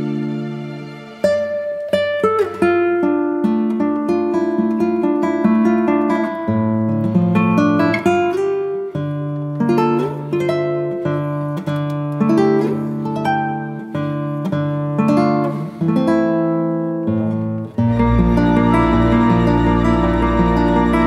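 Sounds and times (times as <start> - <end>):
acoustic guitar plucked notes: 0.0 - 21.0.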